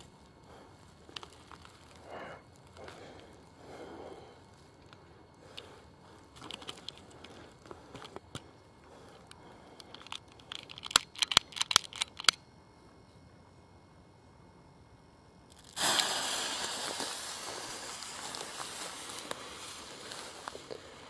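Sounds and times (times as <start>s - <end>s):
crackling of dry pine needles: 0.0s - 12.3s, 15.5s - 21.0s
lighter sparking clicks: 15.5s - 20.8s.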